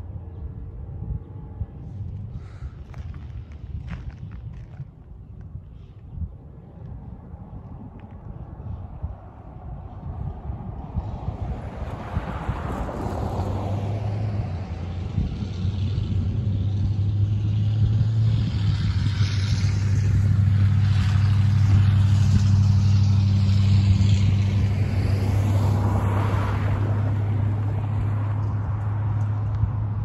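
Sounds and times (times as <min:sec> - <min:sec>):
car passing: 0:08.3 - 0:30.0.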